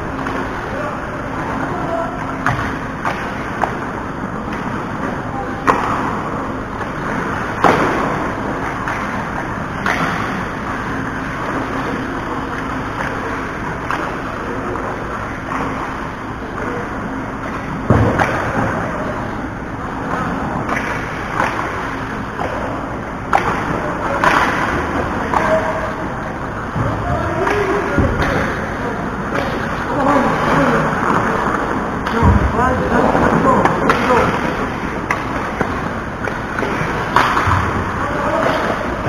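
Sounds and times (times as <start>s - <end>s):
hockey sticks and puck knocking: 5.6s - 16.0s, 17.4s - 18.8s, 20.0s - 25.8s, 33.4s - 39.0s.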